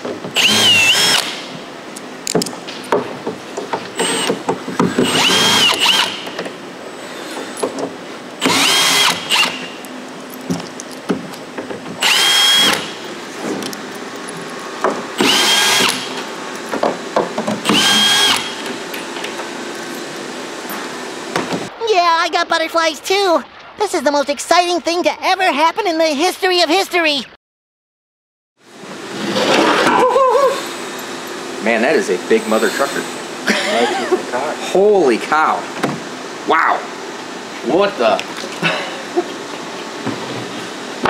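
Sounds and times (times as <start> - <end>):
cordless drill whining: 0.4 - 1.4, 4.0 - 6.3, 8.4 - 9.7, 12.0 - 13.0, 15.2 - 16.2, 17.6 - 18.9.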